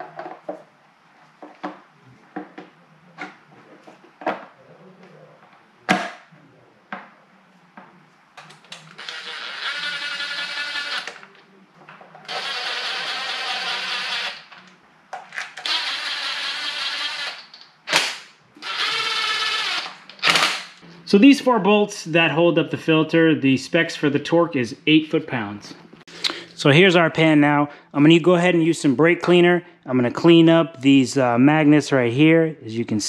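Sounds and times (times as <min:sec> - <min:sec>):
cordless power driver whining: 0:08.9 - 0:11.3, 0:12.3 - 0:14.6, 0:18.6 - 0:20.6.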